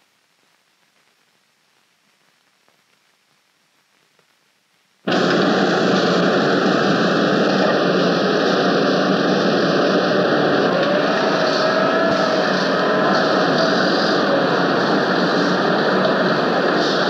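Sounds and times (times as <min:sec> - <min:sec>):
factory machinery din: 0:05.0 - 0:17.0.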